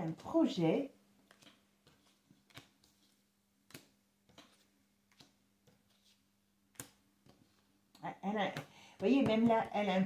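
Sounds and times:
cards dealt onto wooden table: 1.3s - 7.7s.

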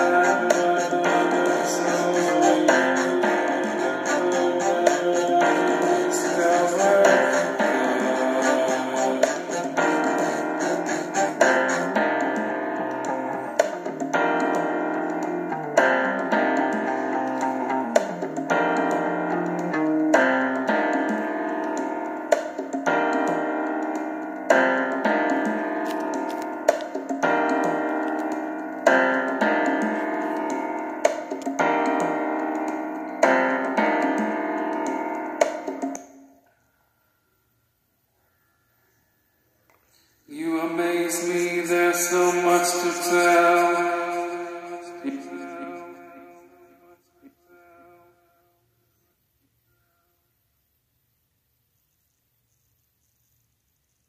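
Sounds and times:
piano chords ringing: 0.0s - 39.6s, 40.3s - 48.1s.

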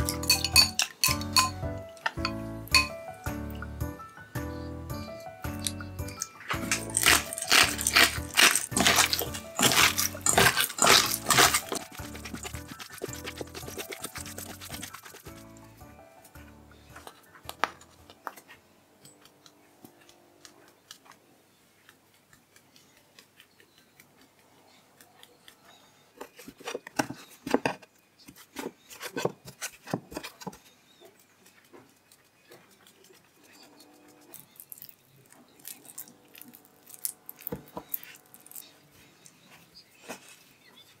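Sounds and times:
handling minced meat: 6.3s - 15.7s.

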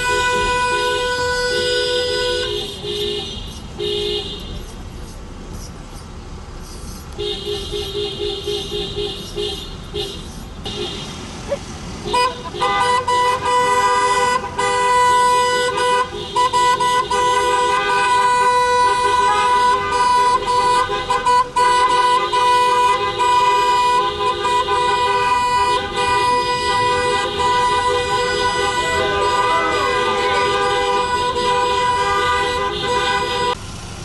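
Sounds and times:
two-note car horn: 0.0s - 4.6s, 12.1s - 33.6s.

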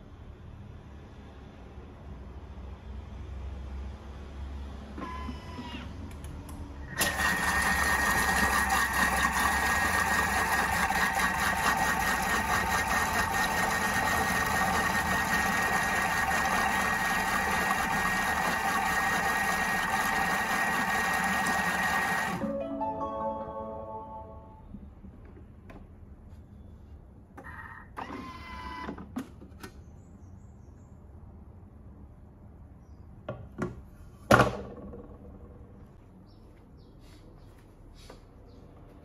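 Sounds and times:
food processor motor whine: 6.9s - 22.4s.

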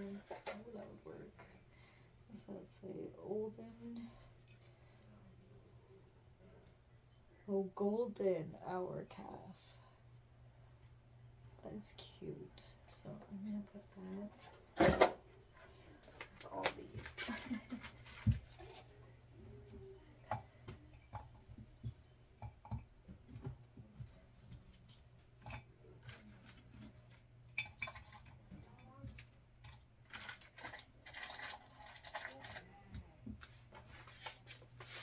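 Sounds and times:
small objects clicking and knocking: 27.6s - 33.1s.

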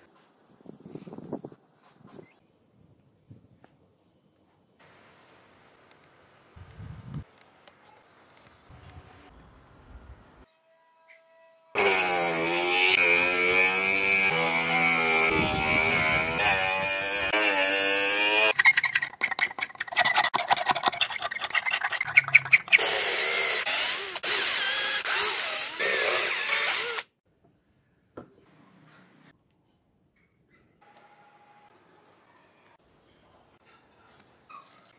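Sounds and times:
small power tool running: 11.8s - 18.6s.

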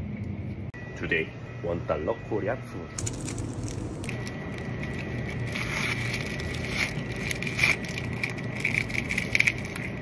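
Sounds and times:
steady background hum: 0.0s - 10.0s
plastic wrapper crinkling and tearing: 3.0s - 10.0s.

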